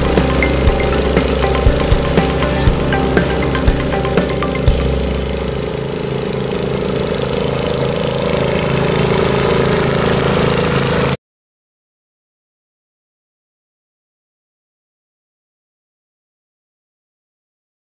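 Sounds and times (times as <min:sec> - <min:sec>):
music beat: 0:00.0 - 0:05.8
lawn mower engine running: 0:00.0 - 0:11.2.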